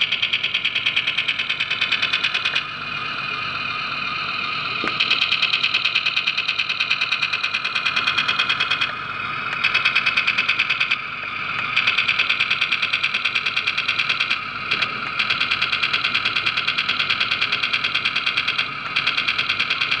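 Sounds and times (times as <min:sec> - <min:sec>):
electronic toy gunfire: 0:00.0 - 0:02.8, 0:04.6 - 0:11.0, 0:11.6 - 0:20.0.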